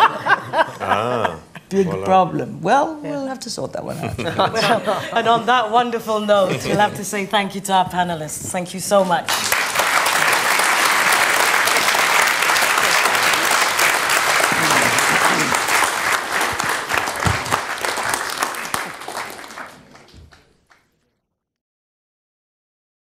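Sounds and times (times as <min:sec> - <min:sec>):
audience applauding: 0:09.3 - 0:20.9.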